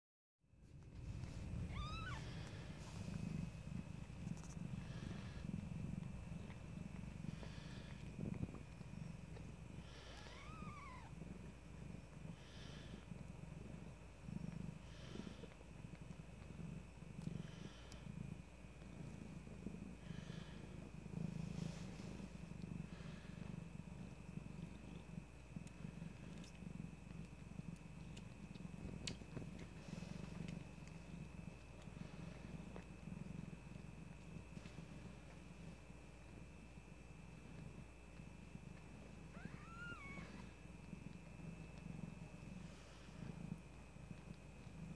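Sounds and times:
cat purring: 0.5 - 44.9
kitten squeaks: 1.7 - 2.2, 39.4 - 40.4.

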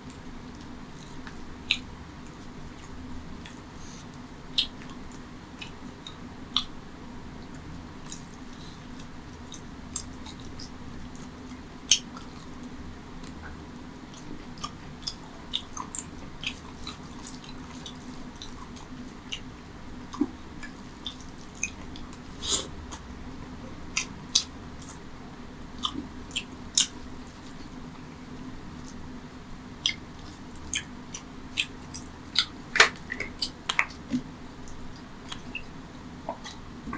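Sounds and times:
steady low hum: 0.0 - 36.9
wet chewing: 14.1 - 23.0, 25.8 - 28.1, 29.8 - 36.9.

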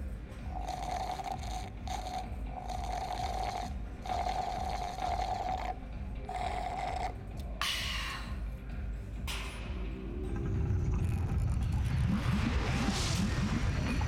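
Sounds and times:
slurping through a straw: 0.5 - 7.2.

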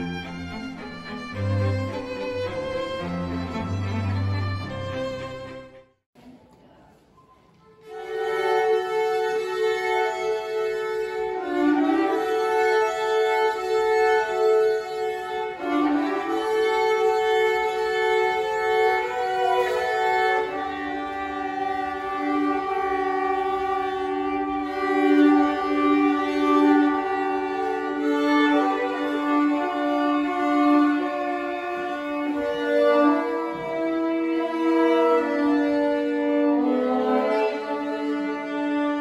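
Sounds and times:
violins playing slow melody: 0.0 - 5.9, 7.8 - 39.0.

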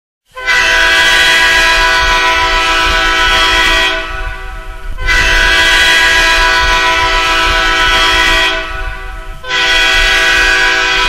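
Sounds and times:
hockey goal horn: 0.3 - 11.0.

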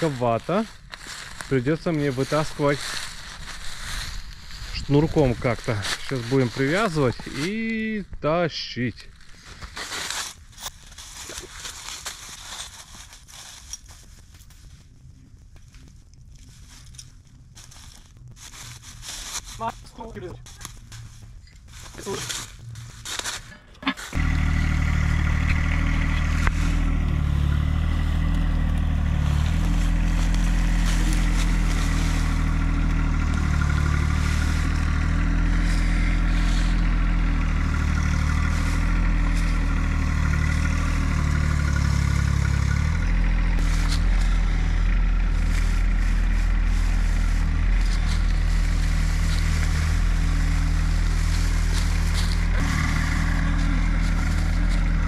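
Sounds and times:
utility vehicle engine under load: 19.1 - 55.0.

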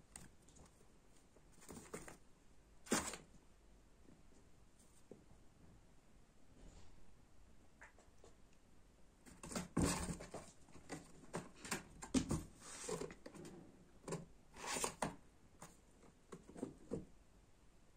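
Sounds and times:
kittens scratching cardboard and carpet: 0.1 - 2.2, 2.9 - 3.3, 9.3 - 17.1.

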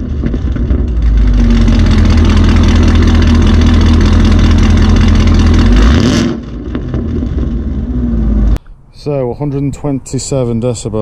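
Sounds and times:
loud car engine at high revs: 0.0 - 8.6.

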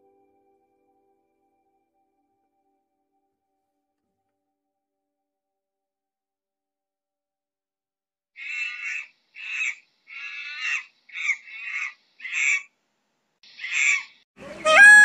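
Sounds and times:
short harsh animal calls: 13.6 - 15.0
peacock wailing call: 13.7 - 15.0.

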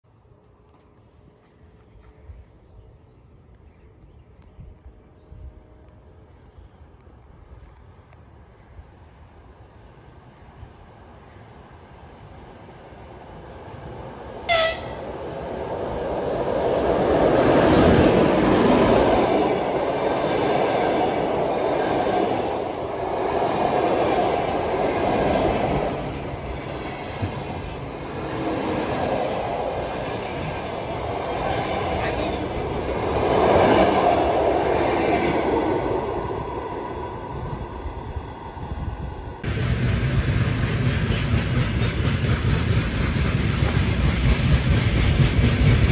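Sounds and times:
train horn toot: 14.5 - 15.0.

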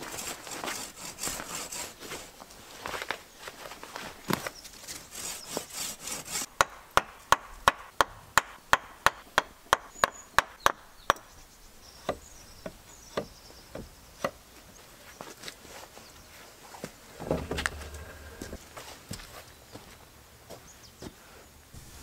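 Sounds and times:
blade scraping wood: 0.0 - 2.4, 4.4 - 6.5, 17.2 - 18.6
sharp knocks on wood: 6.6 - 11.3.

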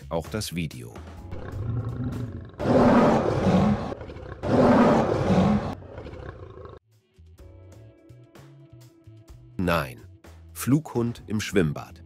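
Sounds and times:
lion roaring: 1.3 - 6.8.

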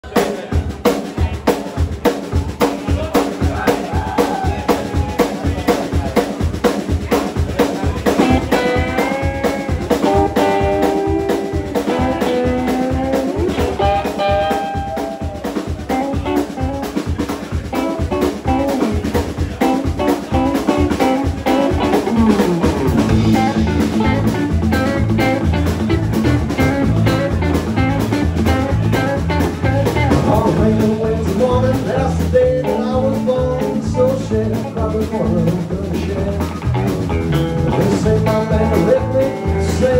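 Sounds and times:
bass guitar: 0.0 - 39.9
drum kit steady beat: 0.0 - 39.9
electric guitar lead lines: 8.0 - 39.9.

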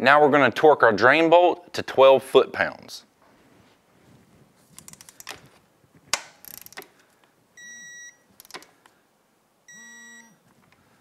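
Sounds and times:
torque wrench ratchet clicks: 6.4 - 6.9, 8.4 - 8.7
short electronic beeps: 7.6 - 8.2, 9.7 - 10.4.

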